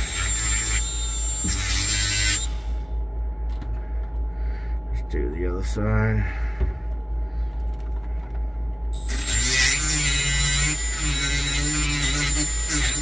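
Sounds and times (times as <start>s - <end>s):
die grinder whining: 0.0s - 2.6s, 9.0s - 13.0s
low hum: 0.0s - 13.0s.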